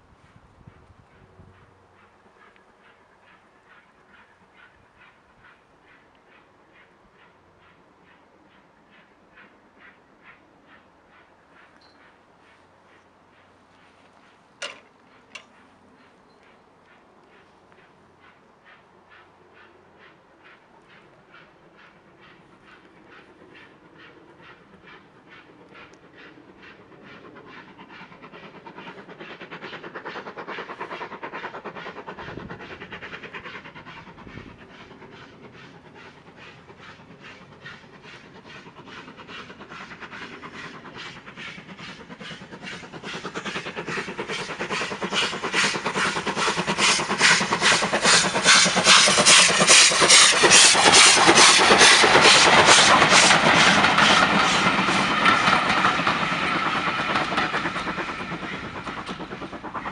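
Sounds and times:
steam locomotive exhaust beating: 0.0s - 59.9s
steam hiss: 20.4s - 59.9s.

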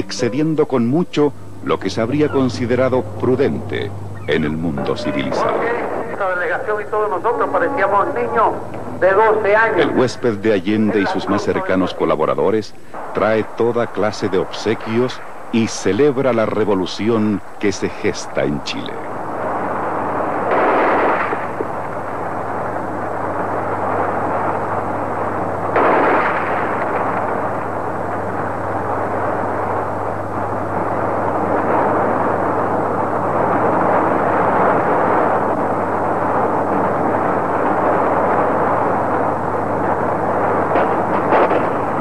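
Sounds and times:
continuous noisy din: 0.0s - 42.0s
steady low hum: 0.0s - 42.0s
gunfire bursts: 19.4s - 25.0s, 25.6s - 42.0s.

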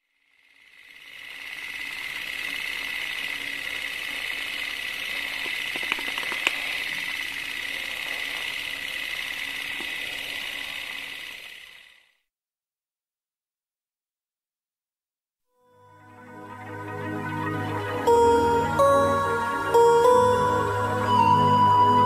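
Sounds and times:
film projector whirring: 0.2s - 12.2s
sharp clicks: 5.2s - 7.4s.

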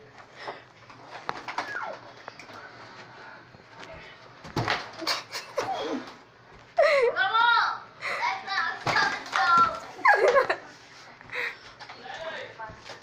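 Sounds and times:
children squealing: 1.6s - 2.0s.

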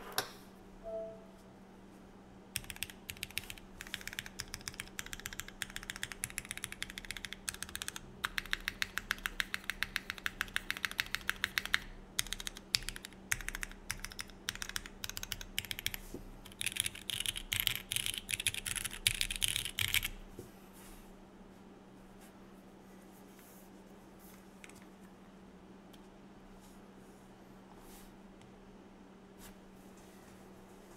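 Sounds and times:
mechanical keyboard typing: 2.6s - 20.2s.

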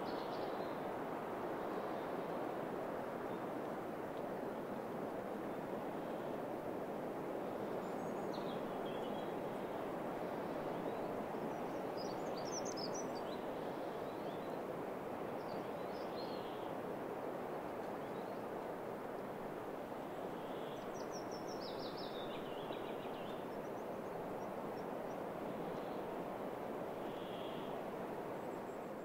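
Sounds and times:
songbird singing: 7.8s - 14.6s, 20.0s - 26.2s, 27.0s - 27.8s.

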